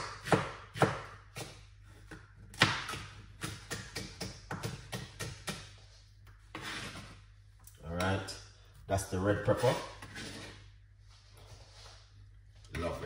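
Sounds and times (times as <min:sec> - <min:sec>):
knife chopping on a board: 0:00.0 - 0:05.8.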